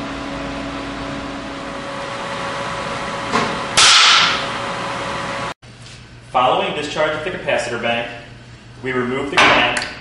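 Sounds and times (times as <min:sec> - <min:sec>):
steady electrical hum: 0:00.0 - 0:10.0
loud sharp bang: 0:03.4 - 0:04.4.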